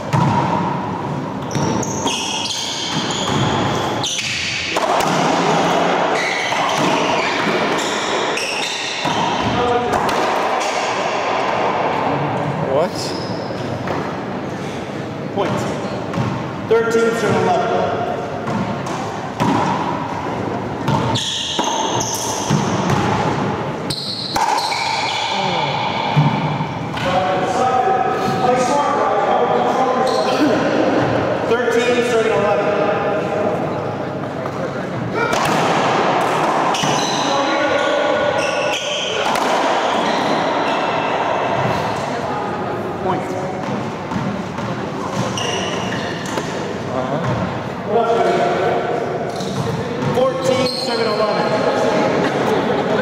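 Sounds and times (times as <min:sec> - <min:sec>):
sneakers squeaking on floor: 0:00.0 - 0:09.7, 0:13.0 - 0:14.2, 0:18.4 - 0:26.7, 0:30.0 - 0:30.6, 0:36.5 - 0:41.8, 0:43.6 - 0:47.6, 0:49.3 - 0:52.0
racquetball cracking off walls: 0:01.5 - 0:11.9, 0:18.4 - 0:23.5, 0:24.2 - 0:25.3, 0:35.3 - 0:37.2, 0:38.9 - 0:41.0.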